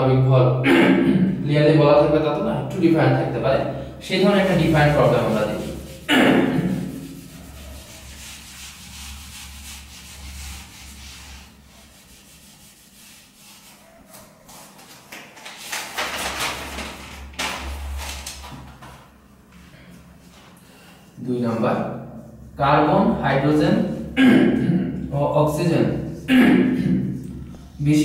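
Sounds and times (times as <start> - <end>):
whiteboard being wiped: 4.0 - 18.7.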